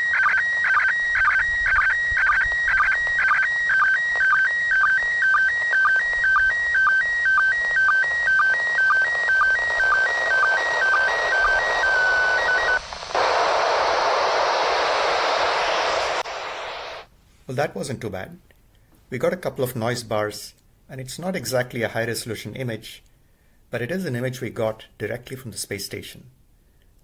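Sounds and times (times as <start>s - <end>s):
warbling image signal tones: 0.0s - 17.1s
loud radio static: 7.5s - 17.1s
radio hiss: 7.5s - 17.6s.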